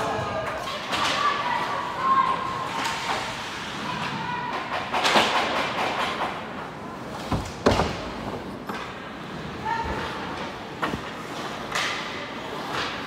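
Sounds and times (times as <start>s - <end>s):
rink crowd hubbub: 0.0s - 13.0s
hockey sticks and puck knocking: 4.5s - 6.5s, 10.3s - 13.0s.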